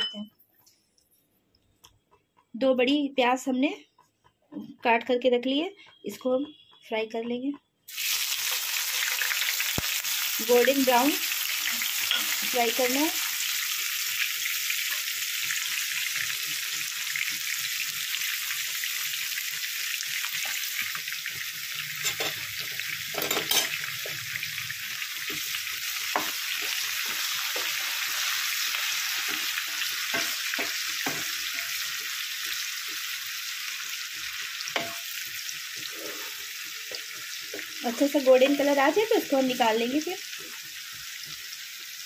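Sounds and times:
onions sizzling in hot oil: 7.9s - 42.0s
wooden spatula knocking on pan: 30.1s - 31.7s.

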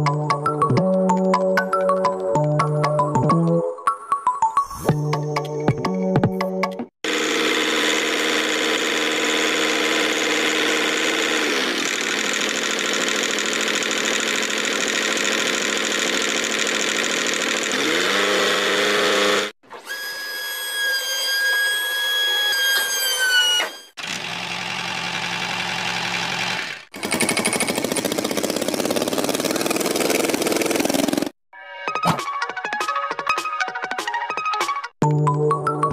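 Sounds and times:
tractor engine running: 7.0s - 19.5s, 24.0s - 31.4s.

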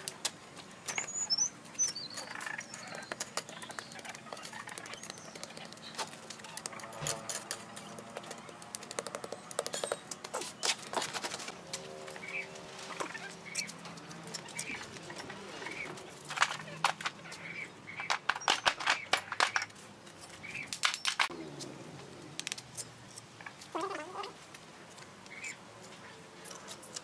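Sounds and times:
bird chirping: 0.8s - 11.1s, 11.8s - 19.7s
trowel scraping and tapping: 2.9s - 11.8s.

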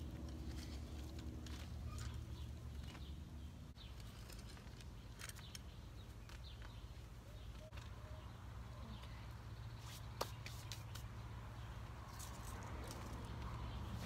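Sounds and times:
hands smoothing garden soil: 9.7s - 11.3s.

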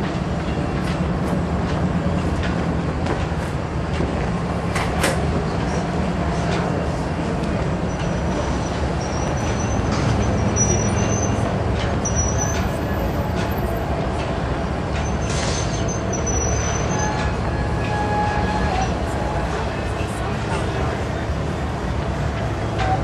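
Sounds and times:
wheel squeals on rails: 7.9s - 14.0s, 14.9s - 19.6s.

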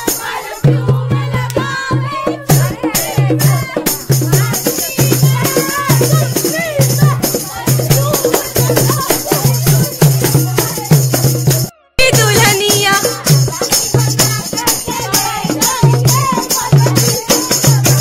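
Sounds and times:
festive dance music: 0.0s - 18.0s
rattling percussion: 0.0s - 18.0s
steady drum beat: 0.0s - 18.0s
person singing: 4.4s - 18.0s.

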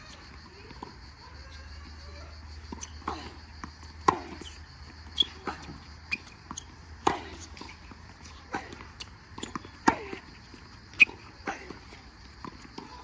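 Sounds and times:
tennis ball bouncing on hard court: 2.6s - 13.0s
tennis ball struck by rackets: 2.7s - 4.5s, 9.4s - 10.3s.

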